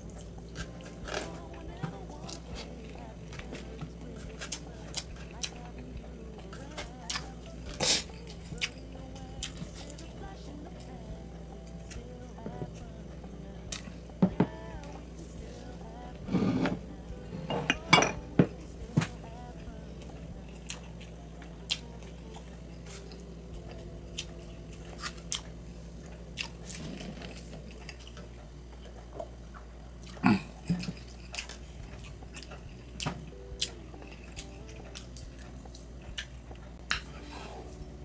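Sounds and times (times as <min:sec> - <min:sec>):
cutlery clinking on plate: 0:17.5 - 0:18.2.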